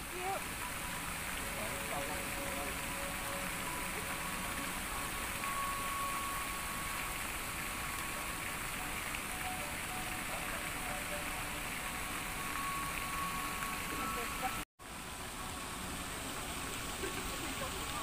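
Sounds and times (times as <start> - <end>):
faint long-held tones: 0.0 - 14.6
outdoor background hiss: 0.0 - 18.0.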